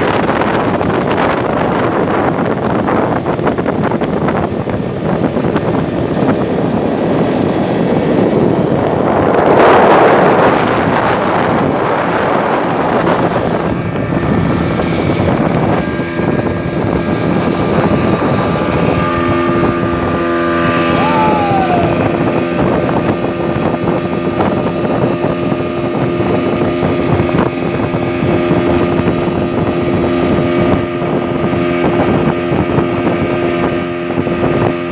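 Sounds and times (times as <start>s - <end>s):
speedboat engine running: 0.0s - 34.9s
water rushing off hull: 0.0s - 34.9s
wind on microphone: 0.0s - 34.9s.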